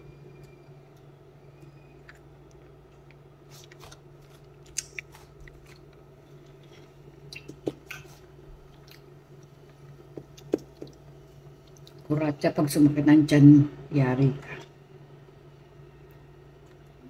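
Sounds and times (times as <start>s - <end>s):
faint low hum: 0.0s - 17.0s
crunching and chewing: 1.8s - 12.1s.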